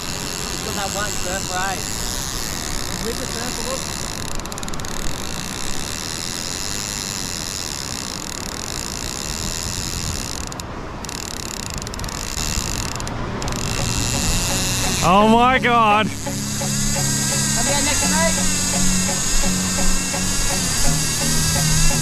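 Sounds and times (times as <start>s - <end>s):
fishing reel ratchet buzzing: 0.0s - 22.0s.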